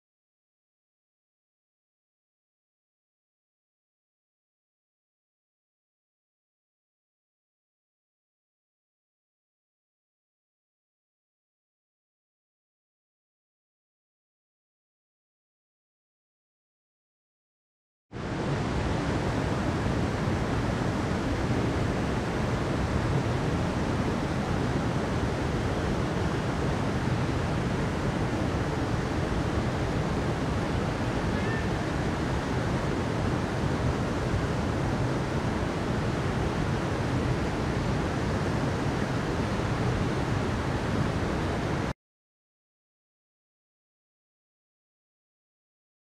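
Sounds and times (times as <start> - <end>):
rushing water: 18.2 - 42.0.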